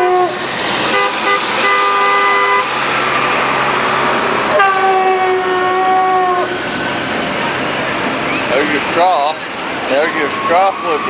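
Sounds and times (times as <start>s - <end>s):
plastic stadium horn blasts: 0.0s - 2.7s, 4.5s - 6.4s
street and crowd noise: 0.0s - 11.0s.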